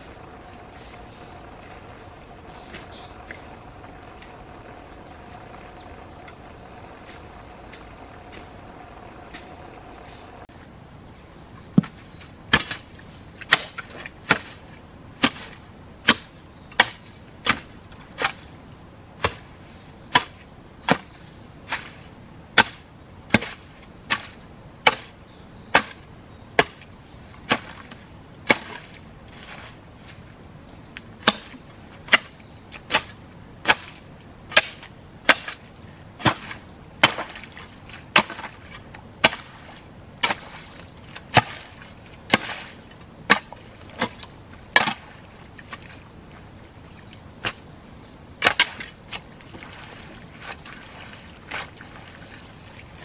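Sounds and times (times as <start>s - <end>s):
high insect trill: 0.0s - 53.0s
chopping blows on wood: 34.5s - 35.6s.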